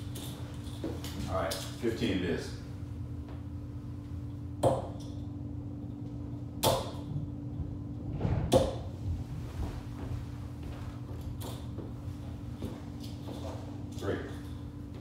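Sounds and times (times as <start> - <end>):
darts thudding into dartboard: 4.6 - 5.0, 6.6 - 7.0, 8.5 - 8.9.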